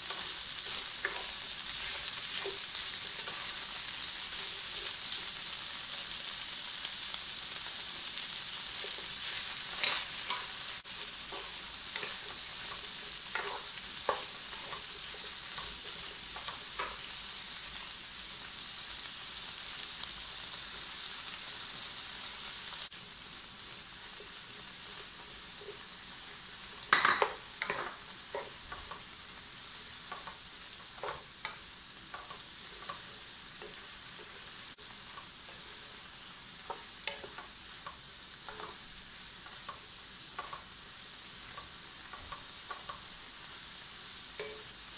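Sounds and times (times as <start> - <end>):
wooden spatula scraping a pan: 0.0 - 5.2, 8.6 - 17.2
vegetables sizzling in oil: 0.0 - 44.9.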